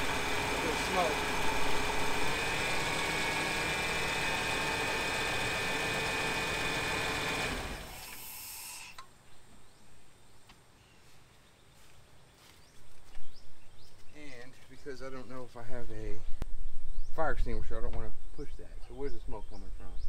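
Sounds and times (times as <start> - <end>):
engine idling with whine: 0.0 - 8.6
engine shutting down: 0.0 - 9.0.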